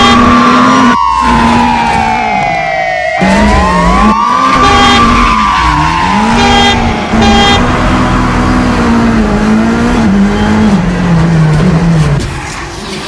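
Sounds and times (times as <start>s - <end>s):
car horn honks: 0.0s - 0.8s, 4.5s - 8.2s
car engine revving: 0.0s - 2.5s, 3.2s - 12.3s
siren: 0.0s - 11.2s.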